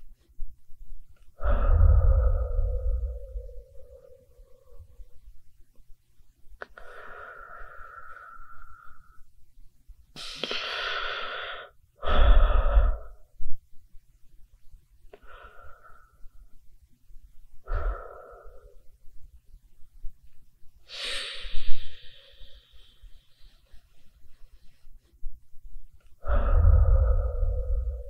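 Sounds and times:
low rumble: 0:00.4 - 0:05.5, 0:26.2 - 0:28.0
person breathing through mouth: 0:01.4 - 0:05.0, 0:06.6 - 0:09.2, 0:10.2 - 0:13.3, 0:17.6 - 0:18.9, 0:20.8 - 0:23.4, 0:26.2 - 0:28.0.

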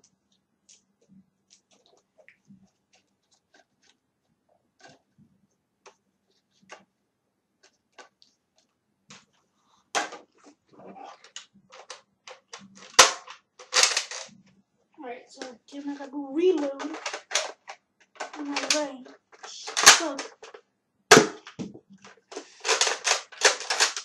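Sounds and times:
plastic toy blaster clicks and rattles: 0:11.1 - 0:14.3, 0:15.4 - 0:24.0.

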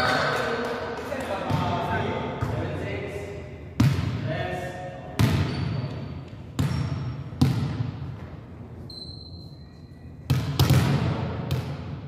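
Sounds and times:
thin high squeak: 0:08.9 - 0:10.2.

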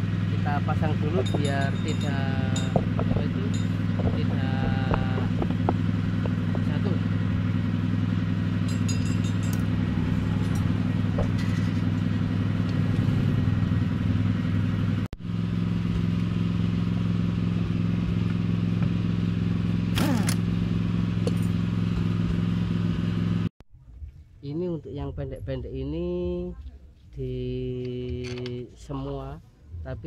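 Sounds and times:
motorcycle engine idling: 0:00.0 - 0:23.3
light metallic clinks: 0:01.0 - 0:04.2, 0:08.6 - 0:09.7.

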